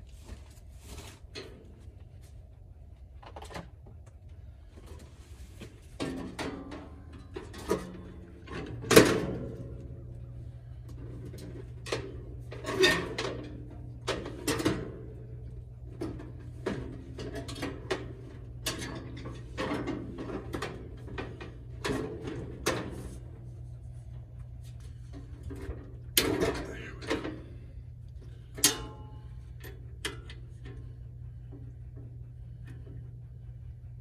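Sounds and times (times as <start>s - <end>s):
steady low hum: 0.0s - 34.0s
metal clanks and scrapes: 11.0s - 15.2s.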